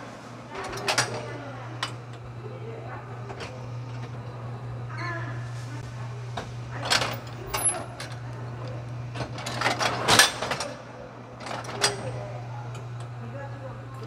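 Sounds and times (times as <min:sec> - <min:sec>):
low machine hum: 0:00.0 - 0:14.0
machine metallic clanks and clicks: 0:06.8 - 0:10.8.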